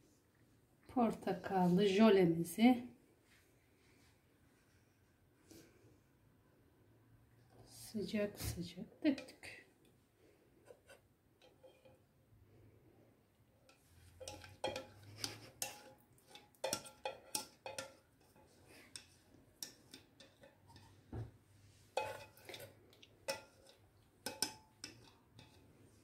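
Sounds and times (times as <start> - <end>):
whisk scraping a saucepan: 10.7 - 12.0, 13.7 - 21.1, 21.8 - 26.0.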